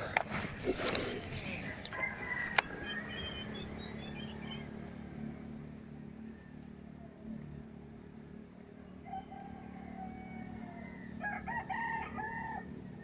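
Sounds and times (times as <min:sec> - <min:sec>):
low steady hum: 0:00.0 - 0:13.0
faint bird chirps: 0:00.5 - 0:04.7.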